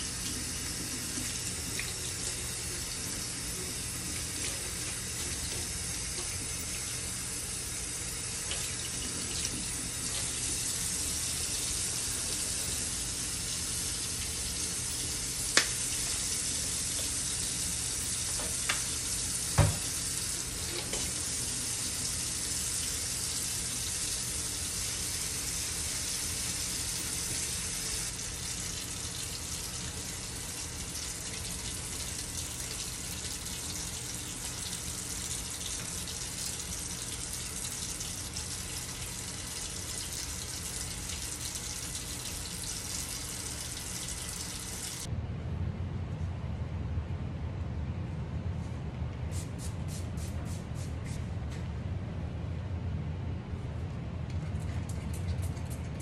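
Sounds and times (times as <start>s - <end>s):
tap running into metal sink: 19.5s - 19.9s.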